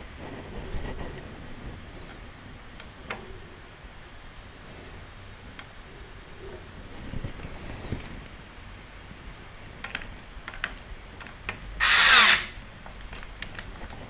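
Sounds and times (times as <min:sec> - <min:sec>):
parts clicking and tapping: 0:09.8 - 0:12.0
electric screwdriver running: 0:11.8 - 0:12.6.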